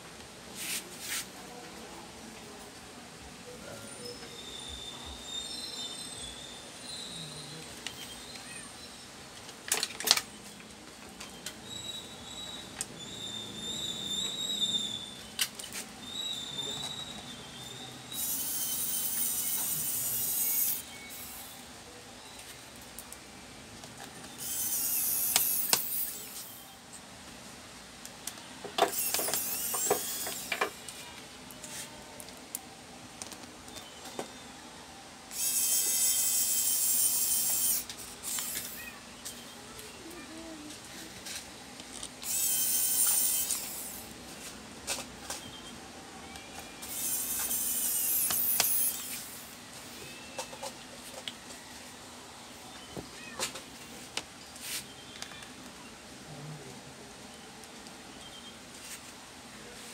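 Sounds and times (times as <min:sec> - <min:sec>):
electric screwdriver whirring: 0:24.4 - 0:26.4, 0:28.8 - 0:30.8, 0:35.3 - 0:38.8, 0:46.8 - 0:49.3
sharp click of parts: 0:28.3 - 0:30.8, 0:48.2 - 0:49.2.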